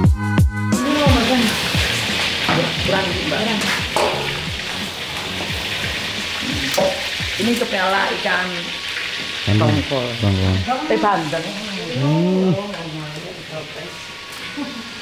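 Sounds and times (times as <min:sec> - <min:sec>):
food sizzling in hot oil: 0:00.7 - 0:15.0
voices talking: 0:00.8 - 0:04.5, 0:09.4 - 0:13.9.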